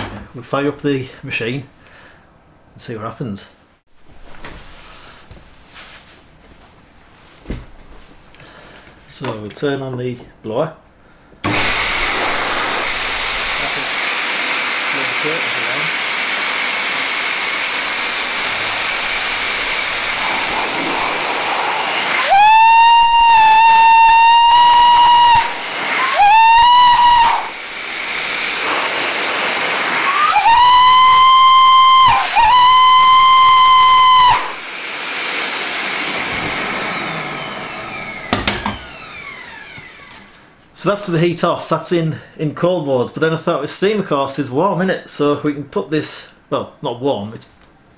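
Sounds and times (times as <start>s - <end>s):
blower rushing hiss: 11.4s - 40.4s
shrill locomotive whistle blasts: 22.2s - 27.6s, 30.1s - 34.6s.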